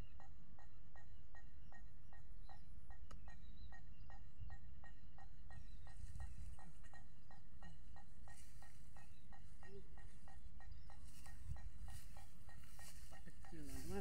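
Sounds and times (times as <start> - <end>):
wind rumble on microphone: 5.5 - 6.7.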